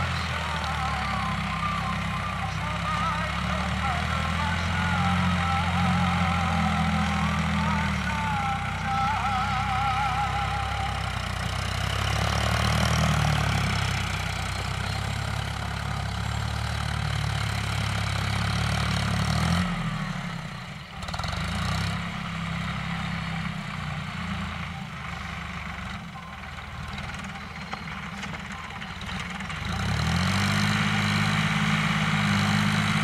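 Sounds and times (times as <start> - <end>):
tractor diesel engine drone: 0.0 - 33.0.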